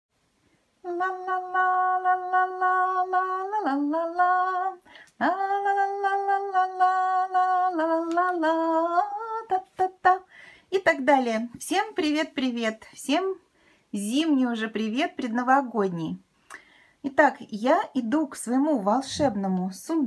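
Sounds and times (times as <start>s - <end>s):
woman singing slow tune: 0.8s - 13.4s.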